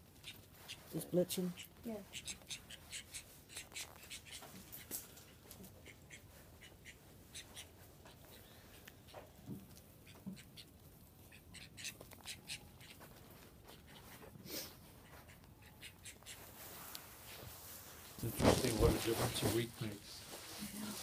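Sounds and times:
faint duck quacks: 0:00.2 - 0:09.2.

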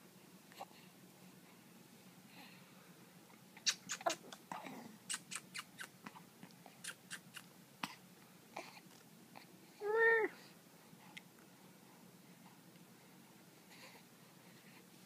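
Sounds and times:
baby sucking and lip smacking: 0:03.6 - 0:04.4, 0:05.1 - 0:06.0, 0:06.7 - 0:07.5.

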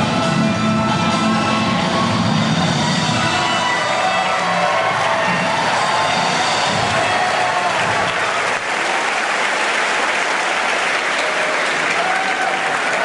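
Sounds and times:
people cheering: 0:00.2 - 0:13.0
audience applauding: 0:03.3 - 0:13.0.

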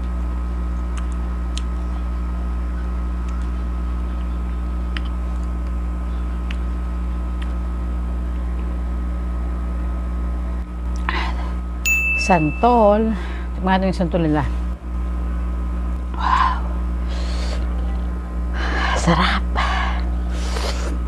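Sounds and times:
air conditioner humming: 0:00.0 - 0:21.0.

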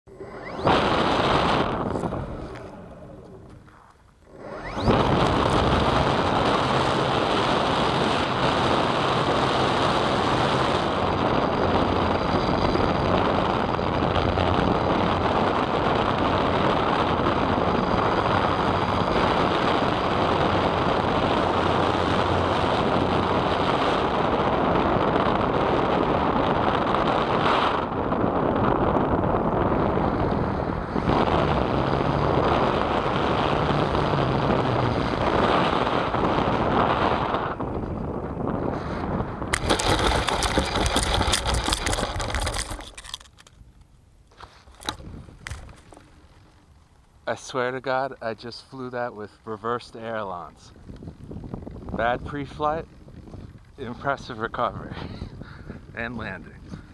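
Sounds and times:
airflow rushing over camera: 0:00.1 - 0:43.1
electric motor and propeller drone: 0:00.1 - 0:43.5.

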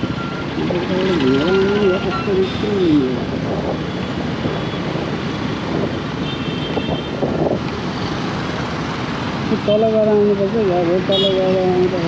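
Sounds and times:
road noise: 0:00.0 - 0:12.0
wind rushing over microphone: 0:00.0 - 0:12.0.

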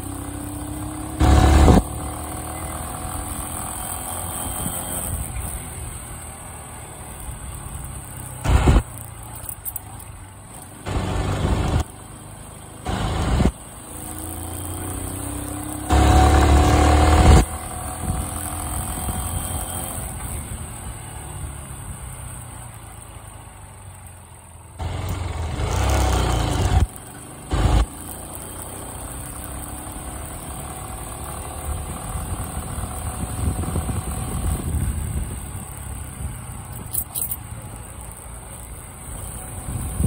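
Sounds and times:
small motorcycle engine rumbling: 0:00.0 - 0:40.0
wind rushing on microphone: 0:32.1 - 0:35.6, 0:39.6 - 0:40.0.

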